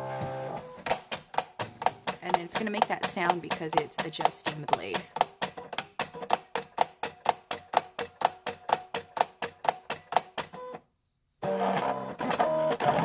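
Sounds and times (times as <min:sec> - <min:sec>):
cutting machine clicking: 0:00.8 - 0:10.6.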